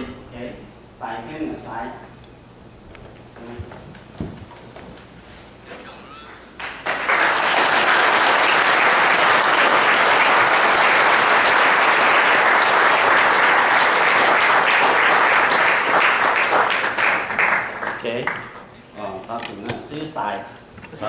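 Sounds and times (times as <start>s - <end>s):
congregation applauding: 6.1s - 18.6s.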